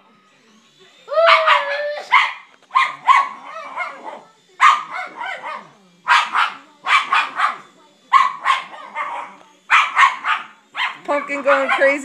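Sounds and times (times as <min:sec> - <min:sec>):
dog barking excitedly: 0:04.6 - 0:12.0.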